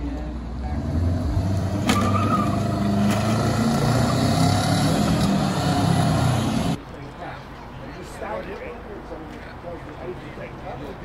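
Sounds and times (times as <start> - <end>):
car engines in traffic: 0.0 - 6.8.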